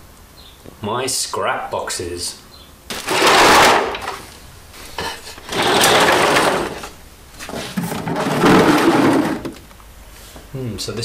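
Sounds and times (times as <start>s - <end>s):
crates dragged on concrete floor: 2.9s - 9.6s.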